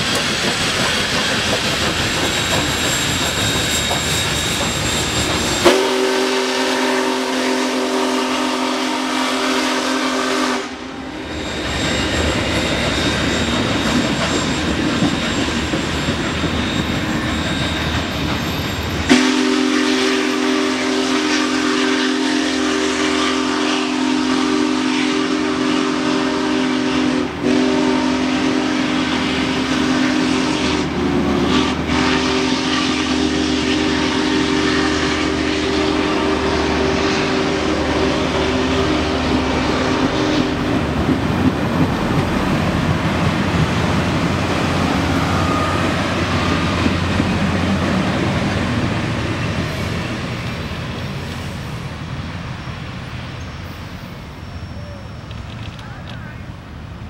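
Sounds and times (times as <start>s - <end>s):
passing train rumble and rattle: 0.0s - 57.0s
steam whistle chord: 3.8s - 14.5s, 19.1s - 40.7s, 44.8s - 47.1s.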